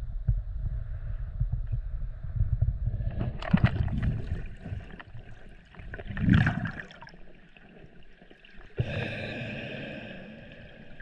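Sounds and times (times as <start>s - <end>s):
water splashing and gurgling: 3.0s - 11.0s.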